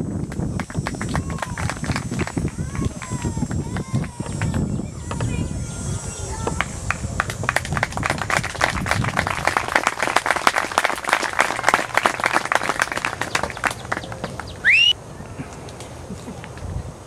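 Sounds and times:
audience applauding: 0.0s - 4.7s, 6.9s - 14.9s.

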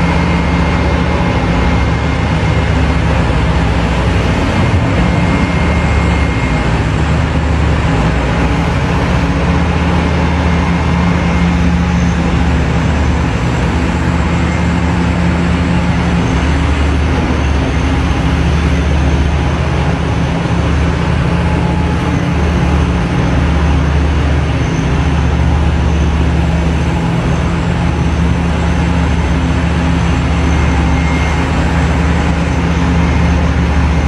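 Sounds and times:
excavator diesel engines droning: 0.0s - 34.0s.

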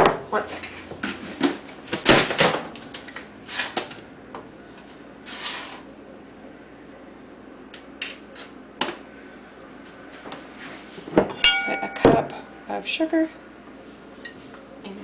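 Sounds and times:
kitchen items knocking and clattering: 11.4s - 12.4s.

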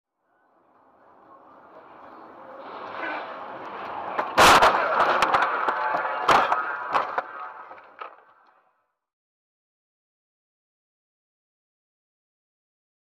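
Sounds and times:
car road noise: 0.2s - 8.7s
loud crash bang: 4.2s - 8.1s.

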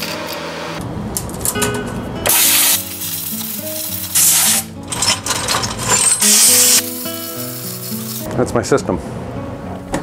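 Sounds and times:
background music: 1.5s - 10.0s
compressed air hissing: 2.3s - 4.7s, 6.2s - 8.3s.

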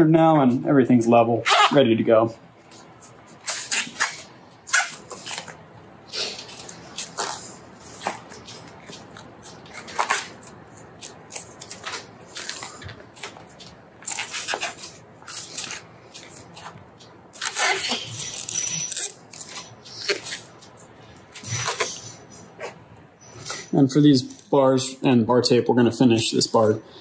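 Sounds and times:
tape crackling and rustling: 2.7s - 22.2s.

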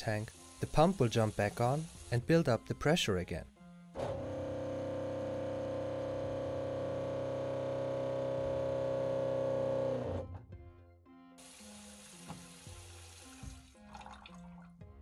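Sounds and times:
water pump humming: 11.4s - 13.6s.

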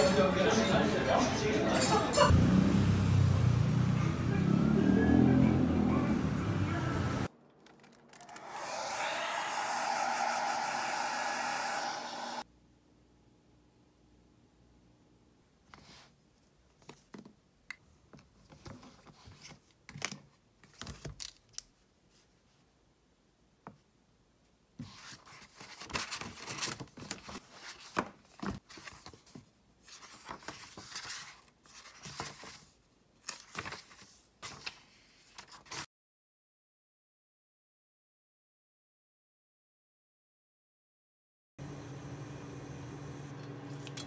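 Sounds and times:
book pages rustling: 18.2s - 22.6s, 24.8s - 35.9s.

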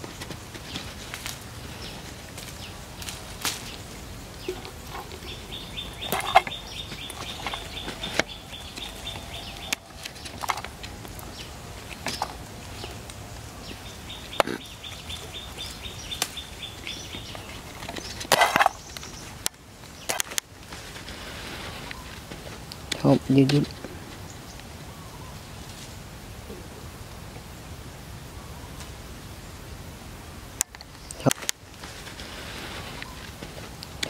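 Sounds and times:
leaves rustling: 0.0s - 34.0s
chili stems snapping: 2.3s - 20.8s.

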